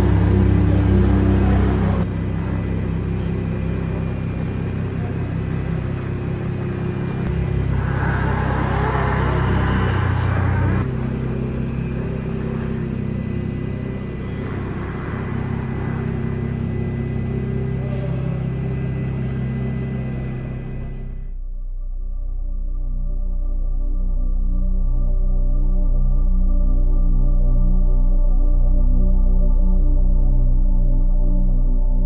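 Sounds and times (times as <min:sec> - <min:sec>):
truck engine idling: 0:00.0 - 0:21.3.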